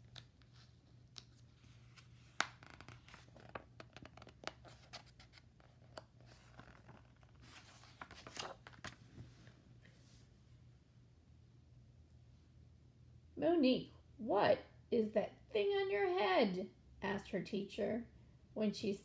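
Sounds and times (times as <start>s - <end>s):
book pages rustling: 0.0s - 9.6s.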